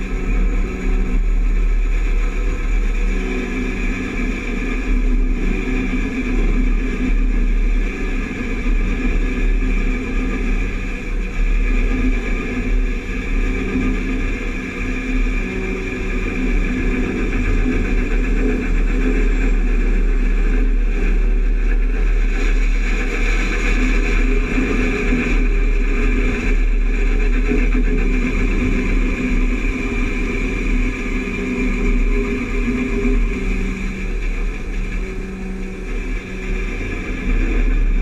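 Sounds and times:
harvest machinery engines running: 0.0s - 38.0s.

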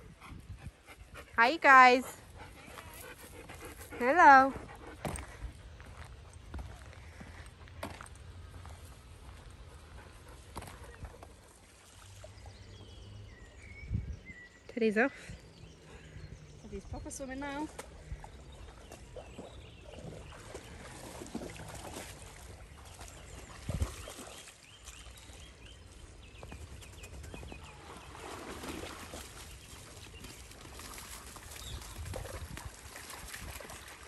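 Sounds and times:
dog splashing through water: 17.8s - 26.0s, 27.5s - 34.0s.

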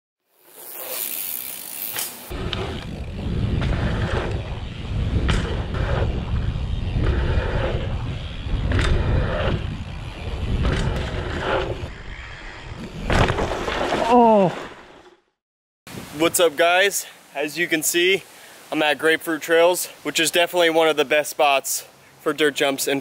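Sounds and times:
bike tyres rumbling on dirt: 0.4s - 14.8s
wind on microphone: 2.3s - 12.9s
bike landing knocks: 5.1s - 6.2s.

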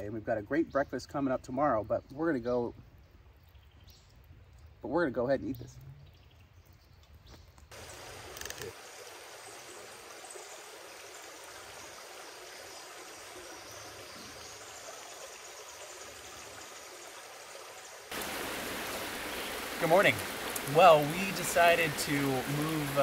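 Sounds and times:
creek water flowing over rocks: 7.7s - 23.0s.

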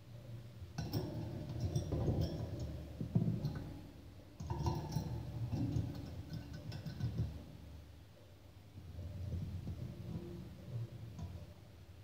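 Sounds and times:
budgie knocking and clinking in cage: 0.8s - 7.6s.

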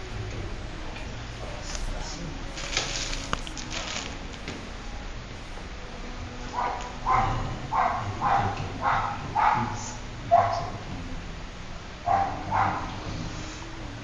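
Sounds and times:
dog barking: 6.5s - 10.8s, 12.0s - 13.3s.

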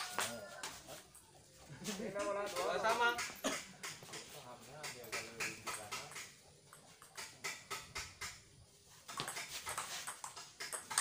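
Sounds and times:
table tennis ball clicks: 9.2s - 11.0s.

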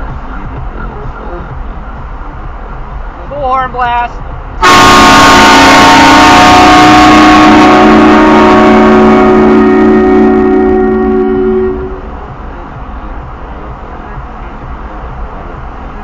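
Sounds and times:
loud train horn blast: 4.6s - 12.2s.

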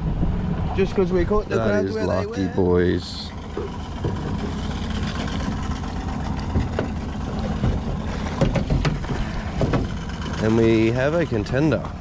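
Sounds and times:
steady low rumble: 0.0s - 12.0s
short knocks: 6.4s - 10.1s.

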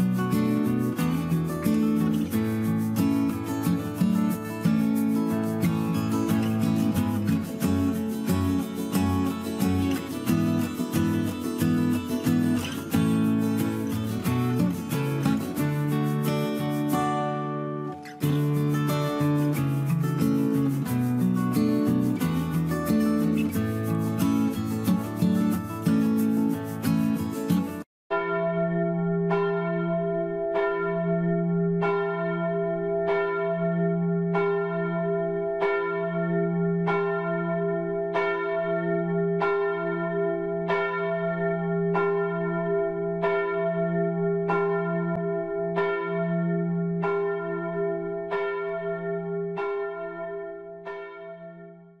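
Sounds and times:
church bell tolling: 28.1s - 52.0s.

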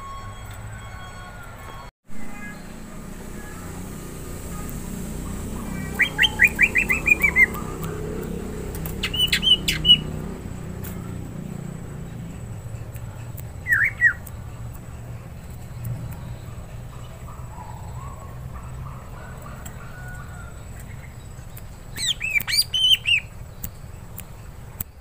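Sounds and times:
bird chirping: 0.1s - 25.0s
bird clicks: 5.9s - 18.7s, 19.6s - 25.0s.

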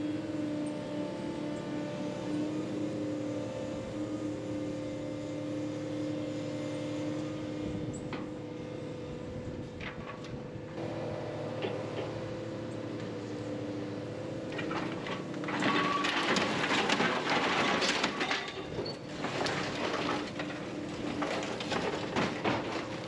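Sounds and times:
heavy machine engine and hydraulics: 0.0s - 23.0s
grapple clanking and crunching metal: 14.2s - 23.0s.

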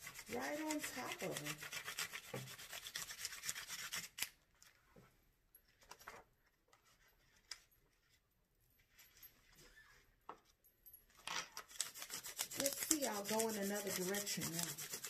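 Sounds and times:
pencil rubbing on paper: 0.0s - 4.2s, 11.8s - 15.0s
paper rustling: 11.6s - 15.0s.

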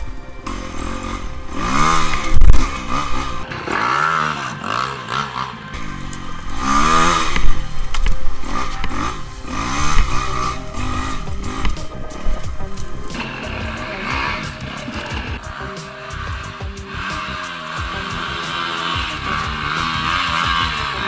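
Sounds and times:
dirt bike engine revving: 0.4s - 21.0s.

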